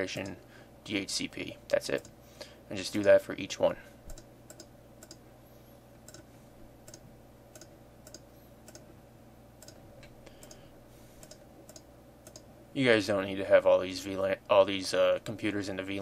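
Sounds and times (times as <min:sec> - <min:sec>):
low steady hum: 0:00.0 - 0:16.0
computer mouse clicks: 0:04.1 - 0:05.2, 0:06.1 - 0:06.3, 0:06.9 - 0:08.9, 0:09.6 - 0:10.6, 0:11.2 - 0:12.5.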